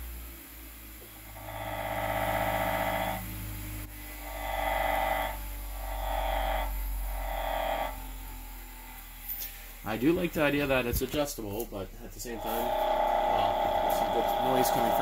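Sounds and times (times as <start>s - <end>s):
bench grinder motor hum: 0.0s - 11.5s, 12.2s - 15.0s
wood grinding against wheel: 12.3s - 15.0s.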